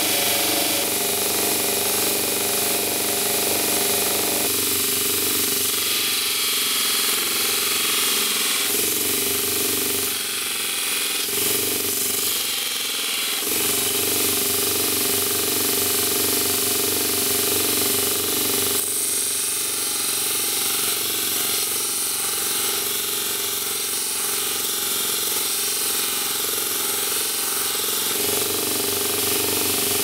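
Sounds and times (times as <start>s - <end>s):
steel bar grinding on belt: 0.0s - 4.6s, 18.7s - 30.0s
belt grinder motor running: 0.0s - 30.0s.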